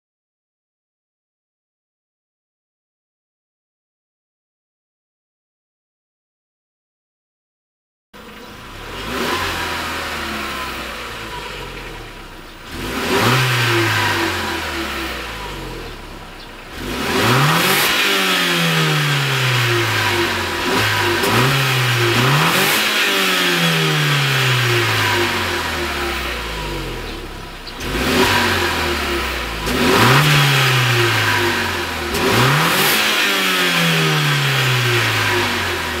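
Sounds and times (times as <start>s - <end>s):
car engine revving: 8.2s - 36.0s.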